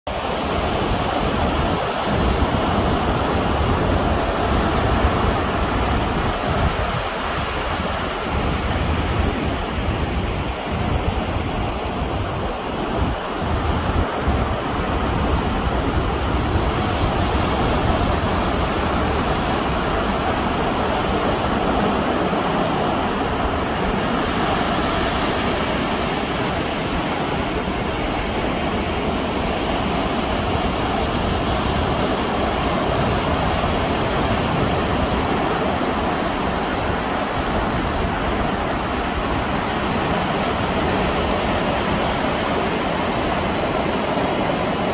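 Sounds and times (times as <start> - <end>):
ocean surf rushing: 0.1 - 44.9
wind buffeting microphone: 0.1 - 44.9.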